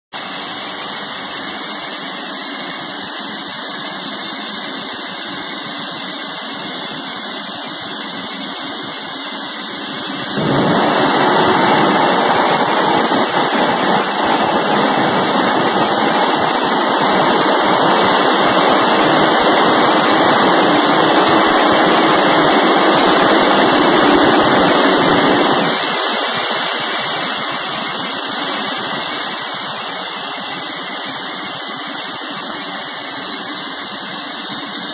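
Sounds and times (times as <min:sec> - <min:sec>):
jet engine high whine: 0:00.2 - 0:34.9
afterburner roar: 0:09.8 - 0:31.3.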